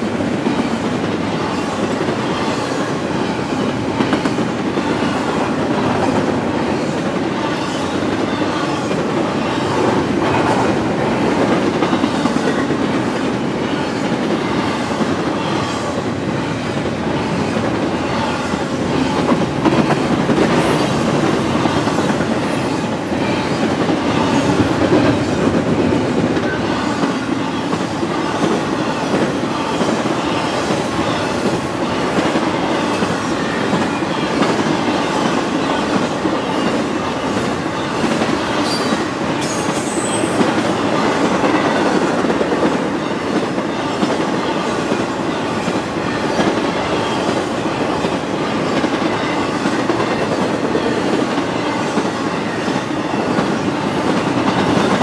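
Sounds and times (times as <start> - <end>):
steel wheels on rail: 0.0 - 55.0.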